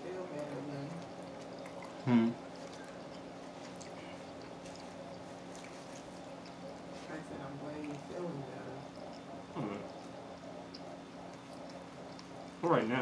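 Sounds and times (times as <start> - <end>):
low hum: 0.0 - 13.0
chewing and mouth clicks: 0.4 - 12.6.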